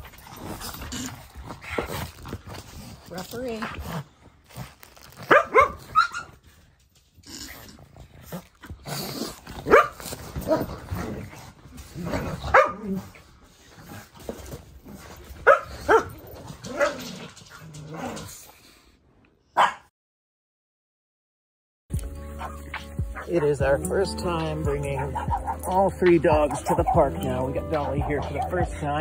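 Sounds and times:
puppies growling: 0.0s - 18.9s, 22.1s - 29.0s
puppies barking: 5.2s - 6.4s, 9.6s - 10.8s, 12.4s - 12.9s, 15.3s - 17.4s, 19.6s - 19.9s, 22.1s - 29.0s.

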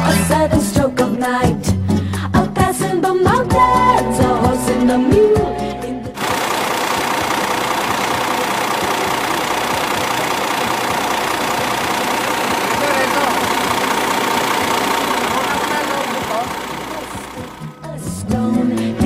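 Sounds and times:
diesel truck engine idling: 6.2s - 18.3s.

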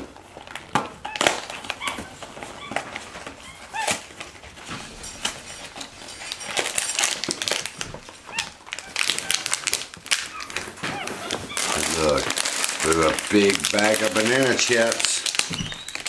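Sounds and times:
plastic pouches crinkling: 0.0s - 16.0s
monkey squeaky chirps: 10.3s - 11.8s, 15.5s - 16.0s.

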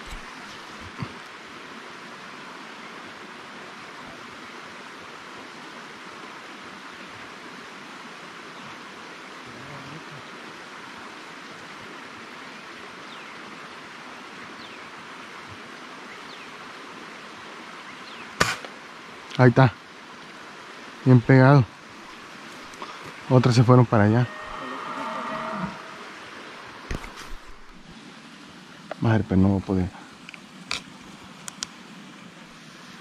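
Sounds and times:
outdoor background hiss: 0.0s - 33.0s.

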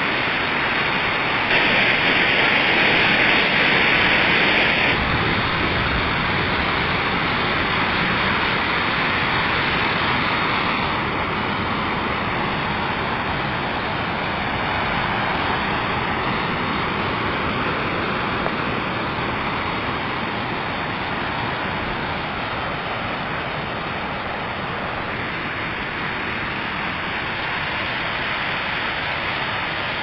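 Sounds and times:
rain falling on leaves: 0.0s - 30.0s.

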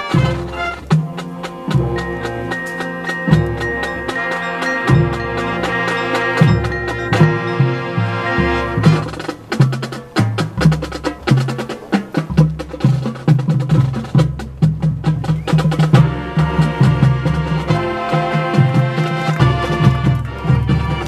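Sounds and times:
sustained wind chords: 0.0s - 9.5s, 15.9s - 21.0s
marching band drums: 0.0s - 21.0s.

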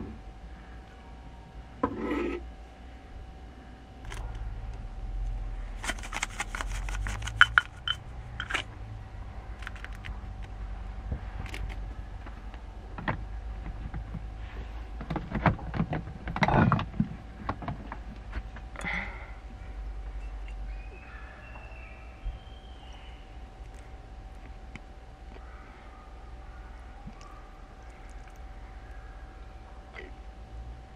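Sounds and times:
pepper grinder clicking: 5.8s - 8.6s.

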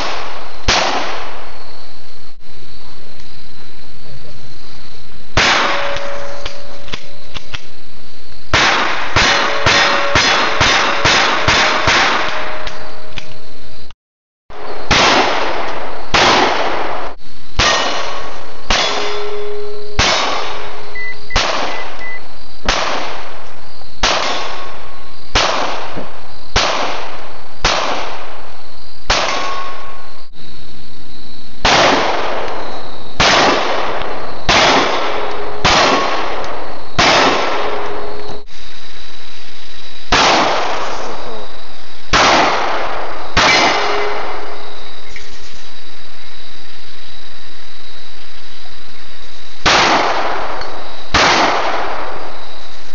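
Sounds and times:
pistol shots: 0.0s - 1.5s, 5.4s - 6.3s, 8.5s - 12.8s, 14.6s - 19.3s, 20.0s - 22.0s, 22.6s - 23.4s, 24.0s - 28.4s, 29.1s - 29.8s, 31.6s - 38.0s, 40.1s - 41.2s, 42.1s - 44.6s, 49.6s - 52.3s.

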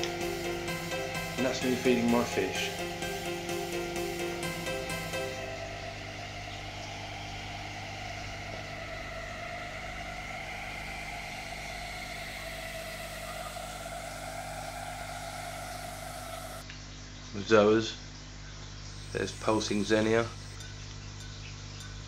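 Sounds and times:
electrical hum with whirring pumps: 0.0s - 22.0s.

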